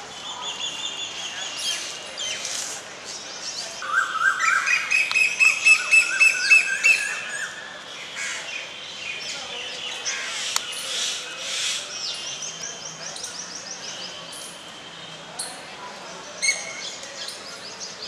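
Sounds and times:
birds chirping: 0.0s - 18.0s.

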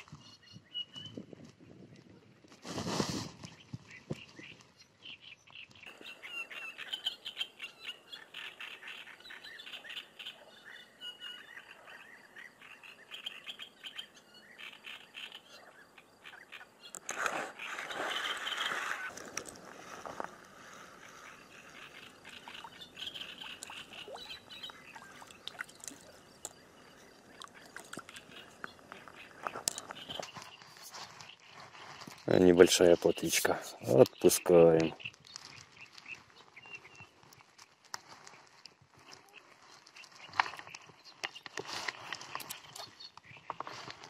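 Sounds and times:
birds chirping and singing: 3.4s - 37.2s
frogs calling: 5.0s - 35.6s.

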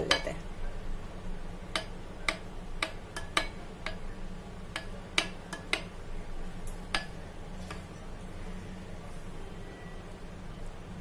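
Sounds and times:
metal spoon clinking against bowl: 1.7s - 4.1s, 4.7s - 6.0s.

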